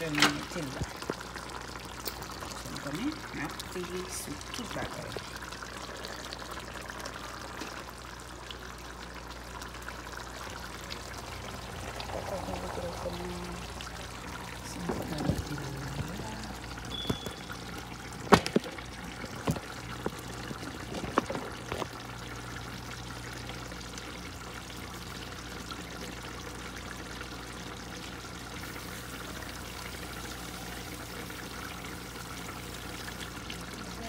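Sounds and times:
steady hiss with low hum: 0.0s - 34.0s.

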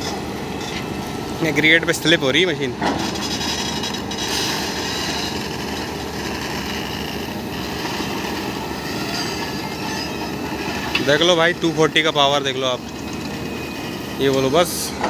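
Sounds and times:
excavator diesel engine working: 0.0s - 15.0s.

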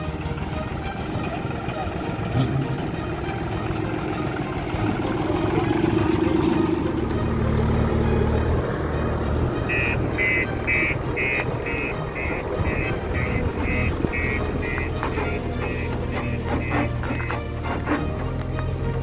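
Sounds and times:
tractor diesel engine running: 0.0s - 19.0s
reversing alarm beeping: 9.6s - 14.9s.

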